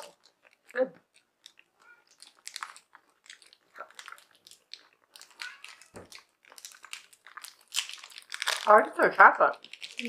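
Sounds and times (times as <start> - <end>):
chewing chocolate crunches: 0.0 - 10.0.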